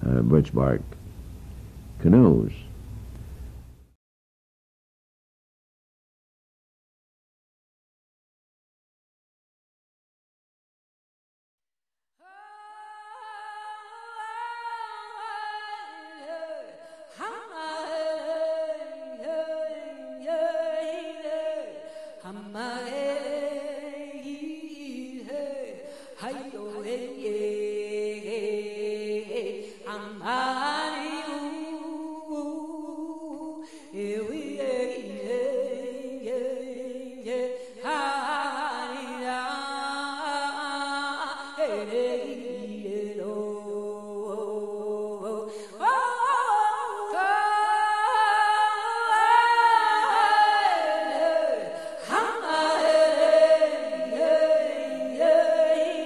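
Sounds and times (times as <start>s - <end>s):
voices singing a chant: 49.5s - 56.0s.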